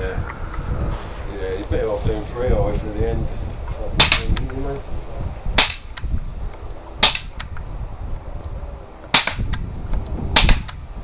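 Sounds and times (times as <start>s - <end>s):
bb gun shots cracking: 4.0s - 4.4s, 5.6s - 6.1s, 7.0s - 7.5s, 9.1s - 9.6s, 10.4s - 10.8s.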